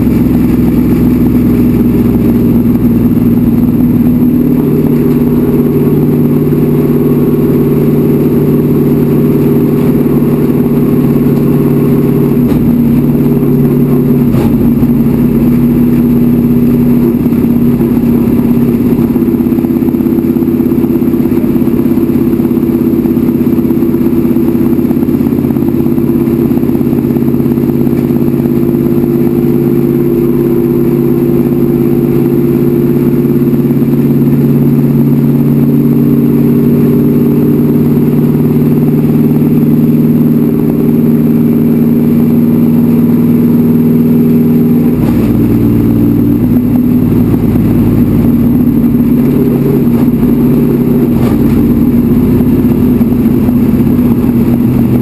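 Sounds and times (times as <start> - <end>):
racecar engine running hard: 0.0 - 55.0.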